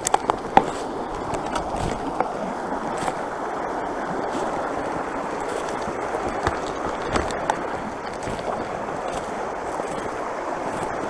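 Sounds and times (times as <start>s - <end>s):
creek water rushing over rocks: 0.0s - 11.0s
footsteps on dry leaves: 4.3s - 11.0s.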